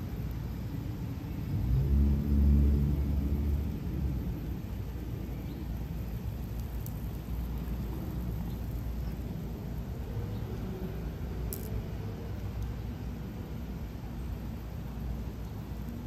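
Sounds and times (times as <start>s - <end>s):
low street rumble: 0.0s - 16.0s
vehicle engine passing: 1.4s - 4.8s.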